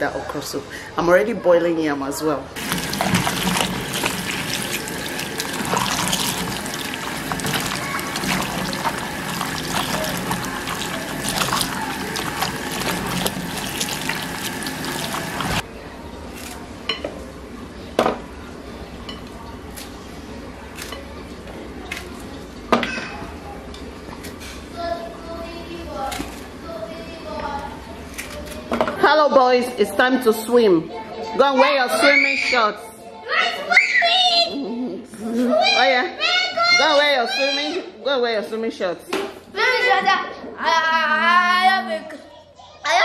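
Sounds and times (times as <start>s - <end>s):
hands rubbing okra: 2.6s - 15.6s
tap water running into bowl: 2.6s - 15.6s.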